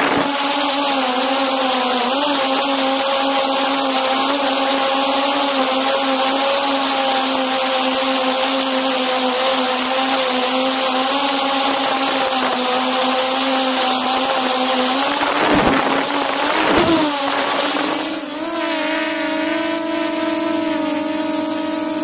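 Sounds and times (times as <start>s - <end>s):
drone propellers humming: 0.0s - 22.0s
wind noise: 14.3s - 20.4s.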